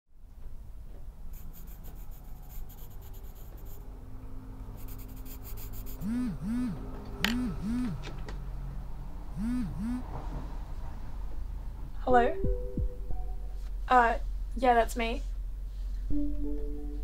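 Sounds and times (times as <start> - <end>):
pencil scratching on paper: 1.3 - 3.9, 4.8 - 6.3.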